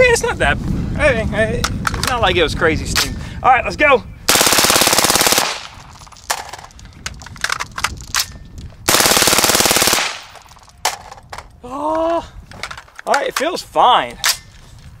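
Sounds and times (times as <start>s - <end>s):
sharp gunshot cracks: 4.3s - 5.8s, 8.9s - 10.4s
suppressed rifle automatic bursts: 4.3s - 6.7s, 8.9s - 10.7s.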